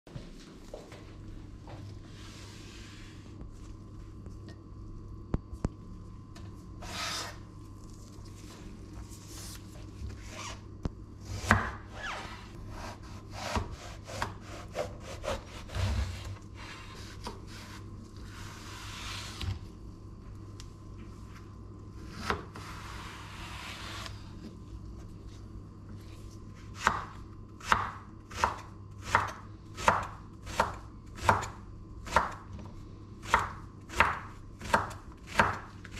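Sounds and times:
knife chopping on cutting board: 11.3 - 11.8, 12.7 - 16.2, 26.8 - 32.4, 33.2 - 35.9.

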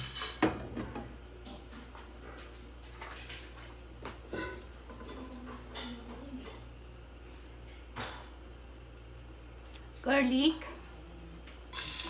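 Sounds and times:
kitchenware clinking: 0.0 - 1.6, 4.3 - 6.6.

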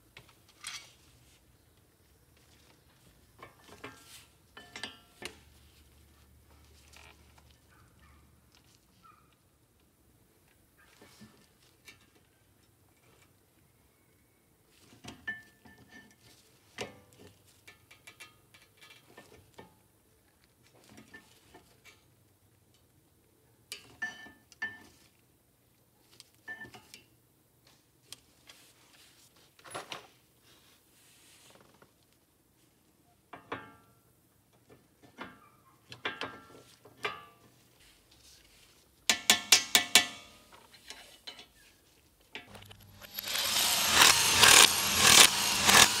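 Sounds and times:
impact wrench hammering: 39.1 - 40.4, 42.7 - 46.0
short rattling burst: 42.8 - 46.0.

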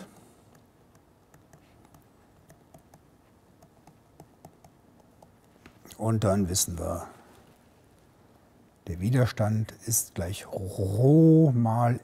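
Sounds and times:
stylus tapping on tablet screen: 0.1 - 5.8.

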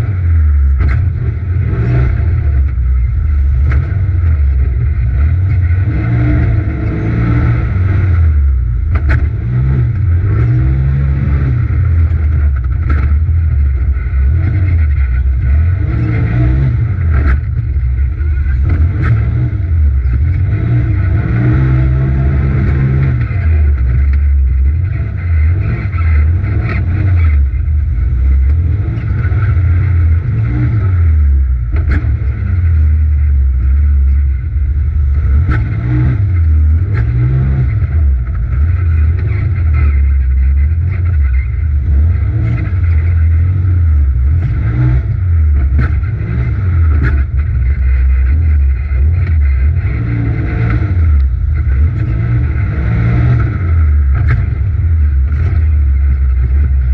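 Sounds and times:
engine revving rising and falling: 5.8 - 8.3, 18.6 - 23.4, 49.5 - 55.6.

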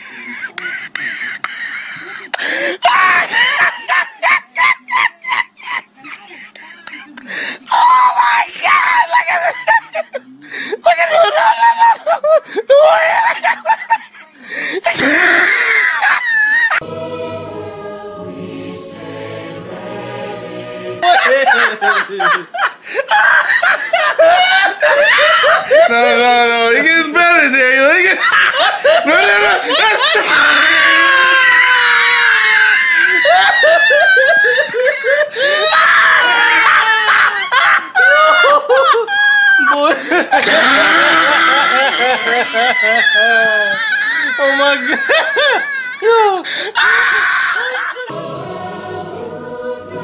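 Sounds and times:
person laughing hysterically: 0.0 - 7.9, 8.9 - 16.8, 21.0 - 26.2, 28.0 - 48.1
person shrieking: 2.8 - 4.7, 14.8 - 16.8, 29.2 - 37.5
choir singing sustained chord: 16.8 - 21.9, 48.1 - 50.0.

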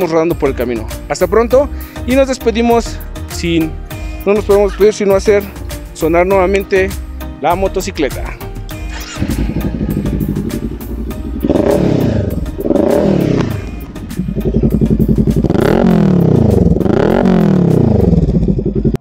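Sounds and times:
motorcycle engine revving: 8.8 - 19.0.

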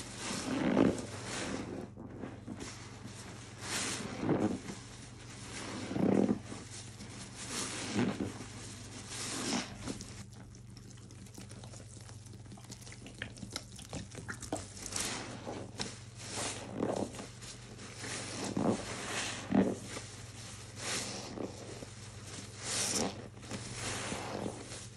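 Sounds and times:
wet sponges squelching: 0.0 - 24.9
water pouring onto sponge: 7.5 - 17.1.

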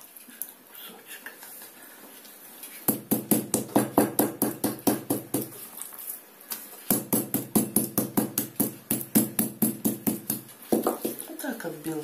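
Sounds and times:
meat mallet pounding chicken: 6.9 - 10.9.

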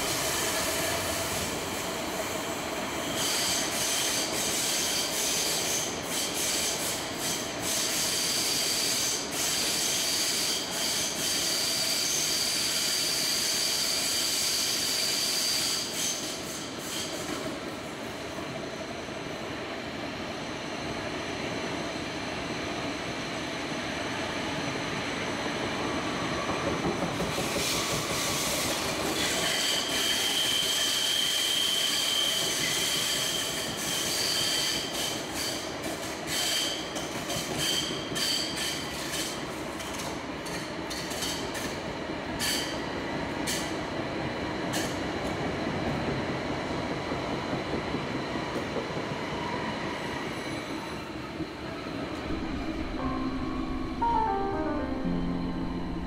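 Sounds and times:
tram wheels rumbling on rail: 24.1 - 41.9, 42.5 - 53.0.

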